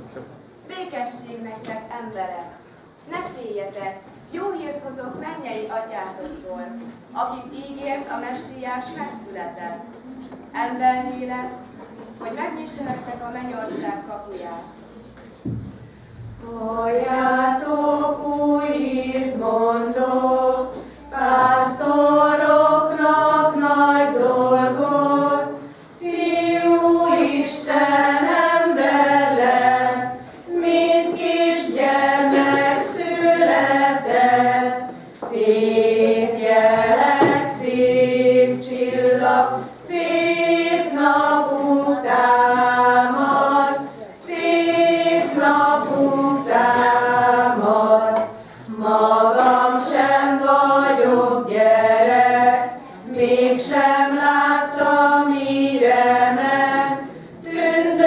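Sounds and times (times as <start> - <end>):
women's choir singing a carol: 10.6 - 14.9, 16.3 - 58.0
choir breathing: 15.8 - 58.0.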